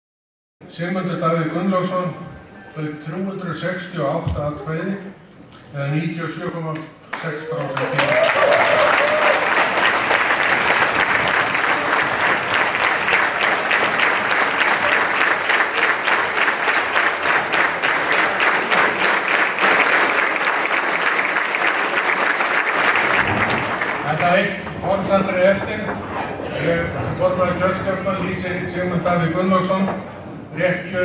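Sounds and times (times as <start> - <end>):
large audience applauding: 7.1 - 24.8.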